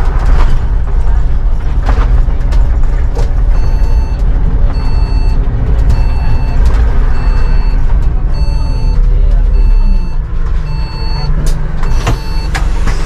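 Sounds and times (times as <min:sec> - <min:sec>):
bus engine and road rumble: 0:00.0 - 0:13.0
electronic beep: 0:03.5 - 0:12.6.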